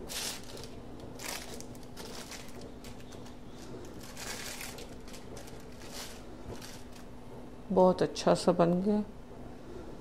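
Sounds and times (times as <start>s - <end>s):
plastic sheet crinkling: 0.0s - 7.1s
faint steady hum: 0.0s - 10.0s.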